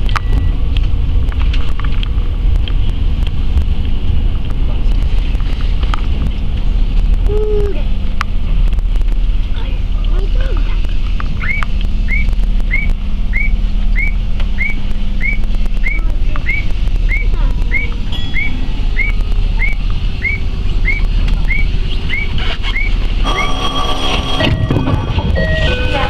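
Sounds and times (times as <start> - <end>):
electric train humming: 0.0 - 26.0
electronic chirp signal: 18.2 - 26.0
multi-tone chime: 23.2 - 26.0.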